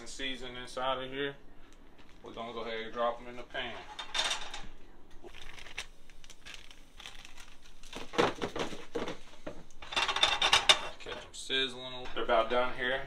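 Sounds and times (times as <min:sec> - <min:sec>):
plastic bag crinkling: 0:01.9 - 0:02.8, 0:05.2 - 0:09.3.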